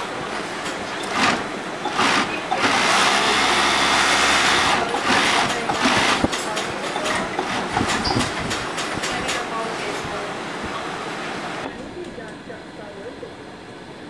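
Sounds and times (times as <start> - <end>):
sewing machine motor humming: 1.0 - 9.0.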